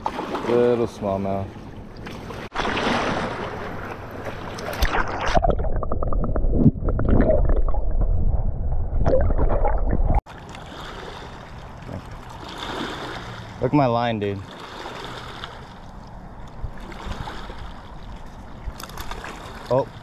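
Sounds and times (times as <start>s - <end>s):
underwater sloshing and gurgling: 0.0s - 20.0s
waves lapping rocky shore: 2.2s - 5.1s, 10.3s - 20.0s.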